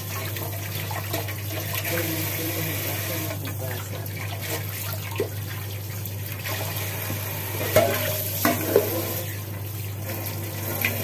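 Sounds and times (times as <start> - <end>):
tap water splashing on fish: 7.1 - 9.0.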